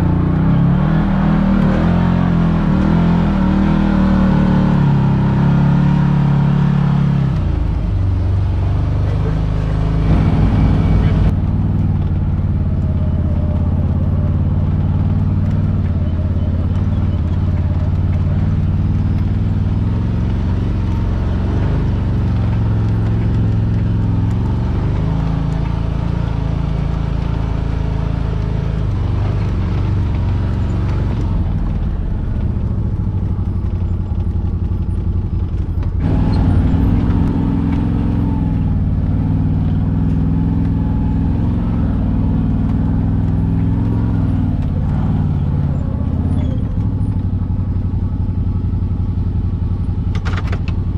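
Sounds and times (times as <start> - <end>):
utility vehicle engine droning: 0.0 - 50.9.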